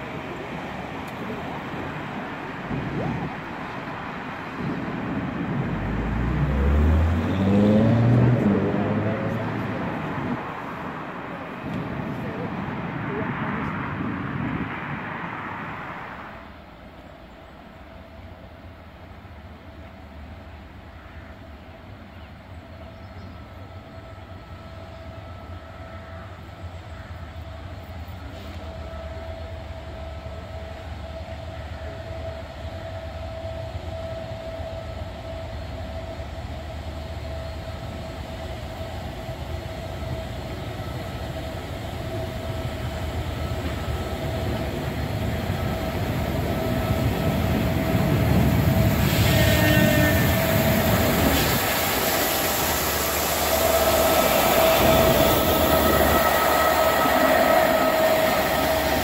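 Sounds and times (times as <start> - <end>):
steam locomotive rumble: 0.0 - 59.0
steady high tone: 52.6 - 59.0.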